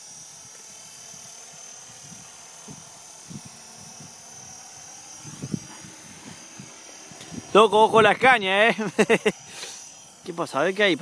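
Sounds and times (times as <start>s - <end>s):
model helicopter high whine: 0.0s - 11.0s.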